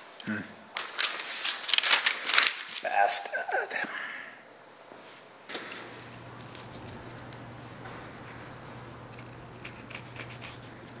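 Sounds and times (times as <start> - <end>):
steady low hum: 4.0 - 11.0.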